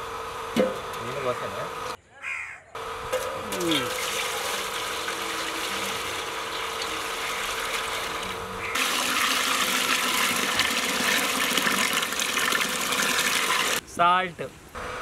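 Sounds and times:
water pouring into metal pot: 3.7s - 13.8s.

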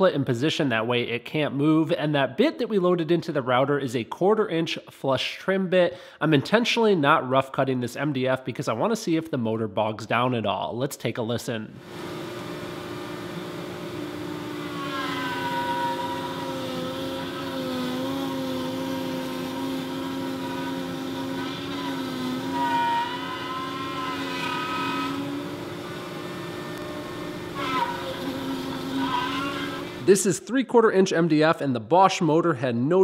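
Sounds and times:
router motor whine: 11.8s - 30.1s
router bit cutting rasp: 13.8s - 30.1s.

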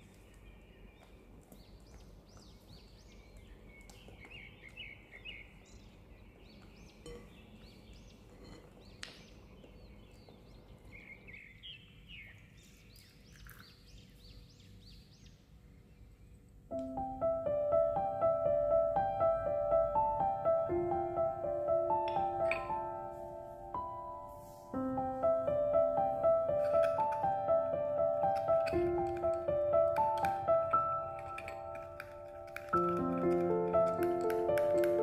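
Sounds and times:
birds chirping: 0.0s - 35.0s
soft piano music: 16.7s - 35.0s.

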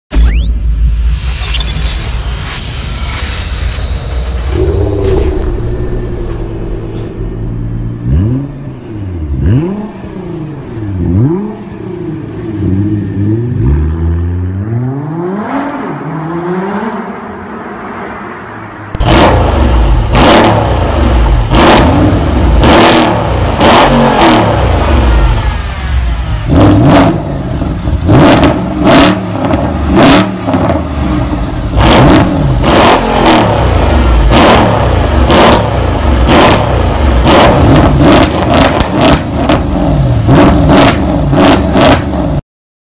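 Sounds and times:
car engine revving: 1.8s - 42.4s
exhaust cracks: 26.1s - 42.4s.

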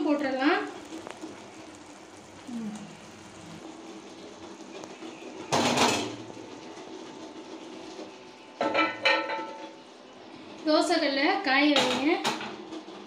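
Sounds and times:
metal pot scraping on grate: 0.2s - 9.8s.

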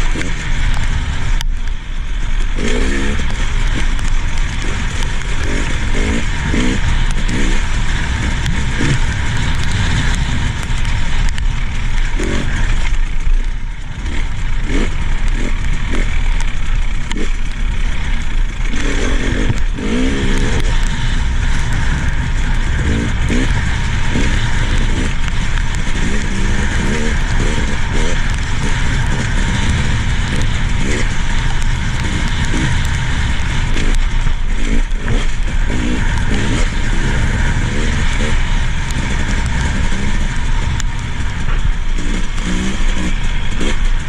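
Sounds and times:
dirt bike engine revving: 0.0s - 44.0s
loud rushing noise: 0.0s - 44.0s.

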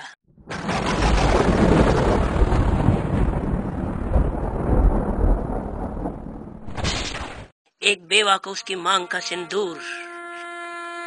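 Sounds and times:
rolling thunder: 0.4s - 6.8s.

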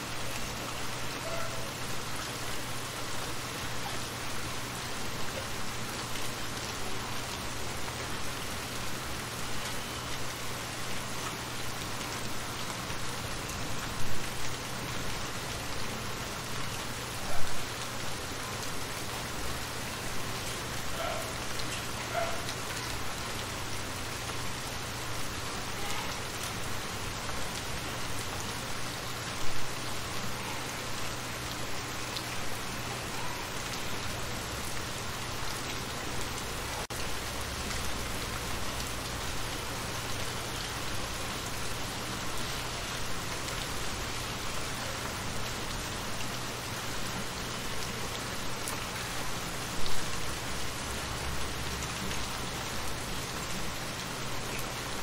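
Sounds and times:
rain pattering on water: 0.0s - 55.0s.

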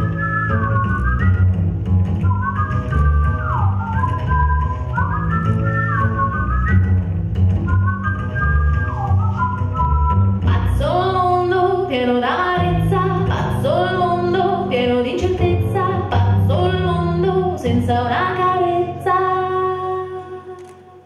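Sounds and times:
steady bass line: 0.0s - 11.8s
person singing: 10.5s - 21.0s.

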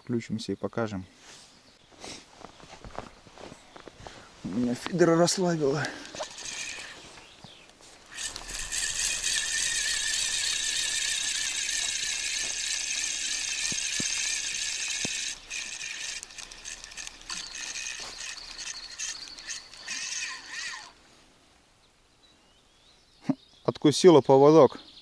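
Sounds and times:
fishing reel whirring: 5.6s - 21.0s.

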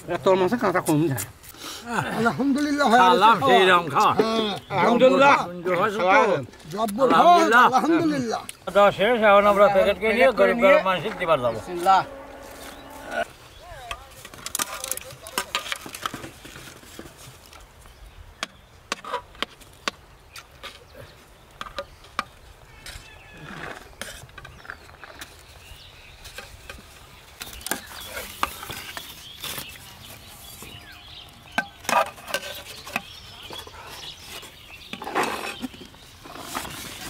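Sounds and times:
spoons scraping metal pots: 3.2s - 13.4s, 27.4s - 37.0s.

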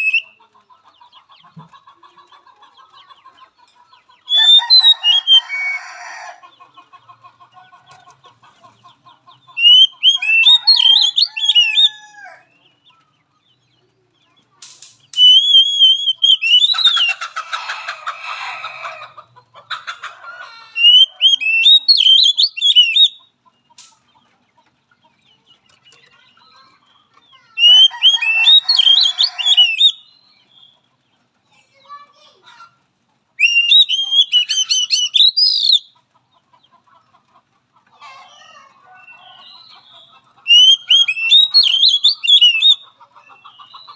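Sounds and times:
bird singing whistled notes: 9.6s - 11.9s, 15.1s - 17.0s, 20.8s - 23.2s, 27.6s - 30.7s, 33.4s - 35.9s, 40.5s - 42.8s.

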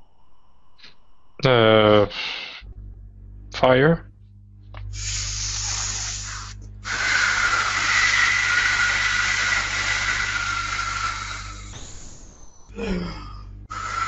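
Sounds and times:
man hissing through mouth: 2.1s - 2.6s, 4.9s - 11.8s, 12.8s - 14.0s.

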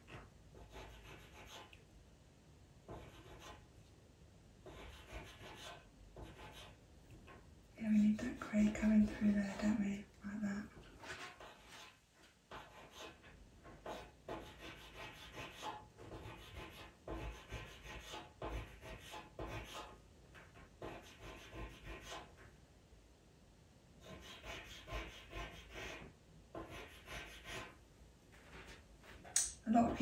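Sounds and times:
pencil scratching on paper: 0.0s - 1.8s, 2.9s - 3.7s, 4.6s - 7.4s, 8.0s - 9.9s, 10.7s - 22.4s, 24.0s - 27.8s, 28.4s - 30.0s.

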